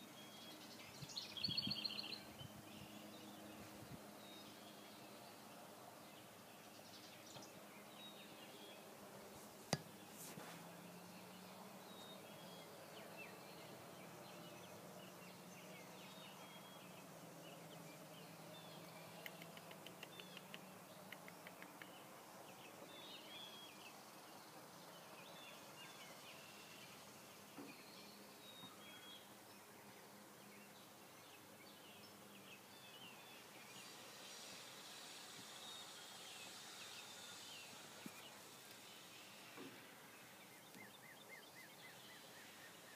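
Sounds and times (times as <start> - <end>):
small bird chirps: 0.0 - 5.2, 17.6 - 24.0
quick run of ticks: 19.1 - 22.0.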